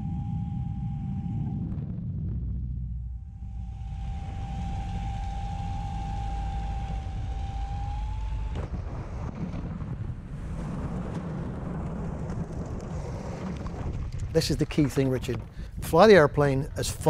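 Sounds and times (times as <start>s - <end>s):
steady high tone: 0.0s - 1.9s, 2.9s - 8.6s
low rumble: 0.0s - 17.0s
wind rush in cockpit: 0.0s - 17.0s.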